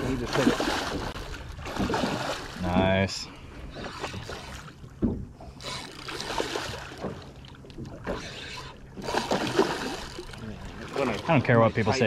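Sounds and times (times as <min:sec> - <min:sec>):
fish splashing in water: 0:00.1 - 0:02.8, 0:05.7 - 0:11.3.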